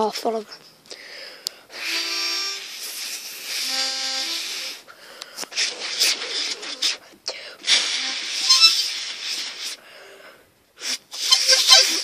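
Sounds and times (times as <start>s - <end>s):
accordion chords: 1.7s - 4.9s.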